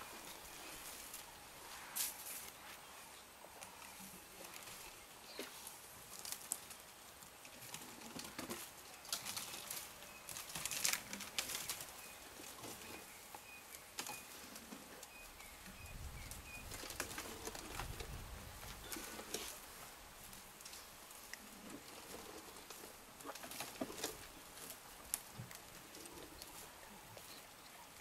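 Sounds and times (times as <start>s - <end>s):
leaves rustling: 0.0s - 28.0s
branches snapping and crackling: 5.4s - 6.8s, 7.4s - 12.9s, 16.3s - 26.6s.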